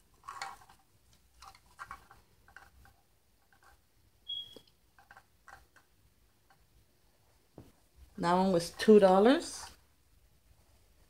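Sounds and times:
brief high squeak: 4.3 - 4.6.

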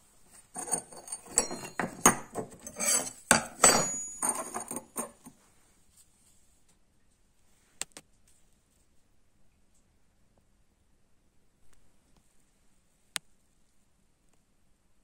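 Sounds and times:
metal blanks clinking on hard floor: 0.6 - 5.3.

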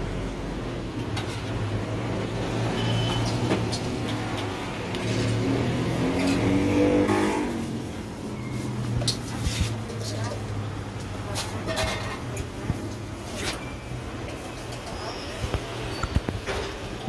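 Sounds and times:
engine running and revving: 4.6 - 8.3.

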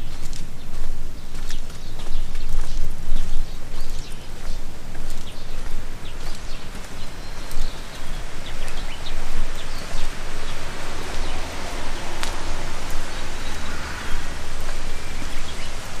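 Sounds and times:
steady rushing noise: 0.0 - 16.0.

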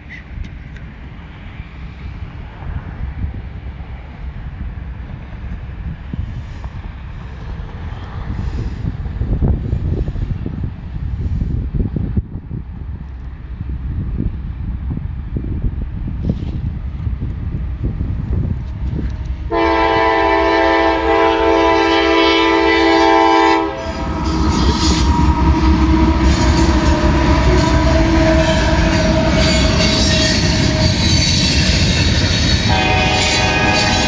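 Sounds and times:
wheel noise on rails: 0.0 - 34.0
deep engine rumble: 13.4 - 34.0
locomotive horn chord: 19.5 - 31.7, 32.7 - 34.0.

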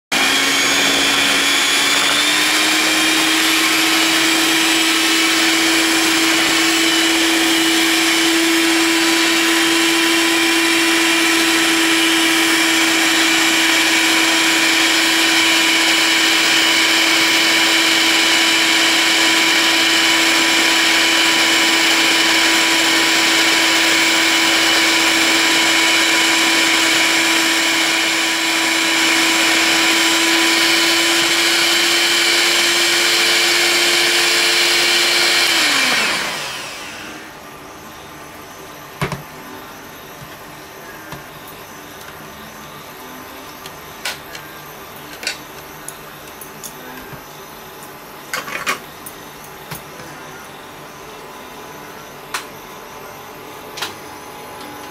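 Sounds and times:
electric hand mixer whine: 0.0 - 38.0.

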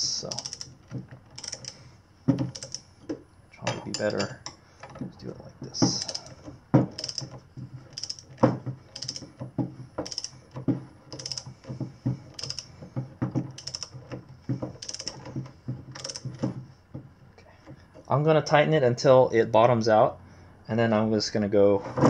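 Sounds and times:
ratchet wrench clicking: 0.2 - 1.8, 2.5 - 2.9, 5.9 - 7.3, 7.9 - 9.3, 10.0 - 10.4, 11.1 - 11.5, 12.3 - 12.7, 13.5 - 13.9, 14.8 - 15.2, 16.0 - 16.2.

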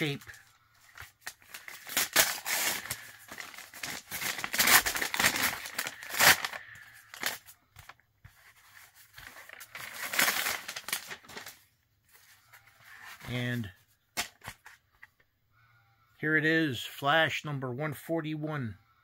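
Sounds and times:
paper packaging tearing and crumpling: 0.0 - 7.5, 8.4 - 11.6.

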